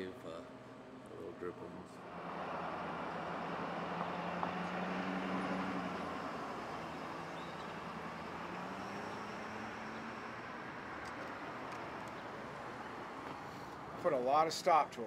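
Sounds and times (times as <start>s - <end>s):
cars driving by: 2.0s - 14.0s
low engine hum: 2.0s - 14.0s
tyres on road: 2.0s - 15.0s.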